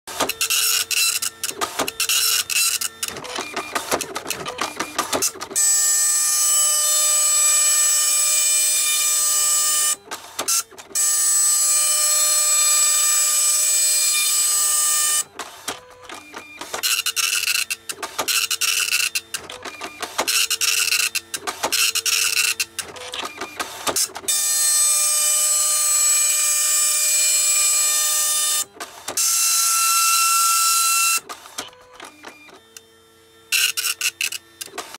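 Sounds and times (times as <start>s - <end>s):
printer stop-start bursts: 0.1s - 8.2s.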